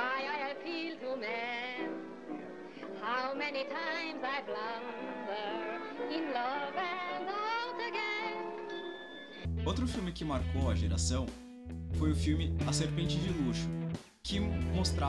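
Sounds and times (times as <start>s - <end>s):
woman singing with vibrato: 0.0s - 2.0s, 2.9s - 8.8s.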